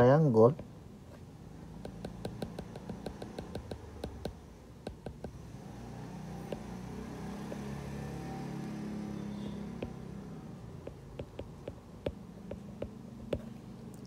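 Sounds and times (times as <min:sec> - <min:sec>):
low steady hum: 0:09.1 - 0:14.0.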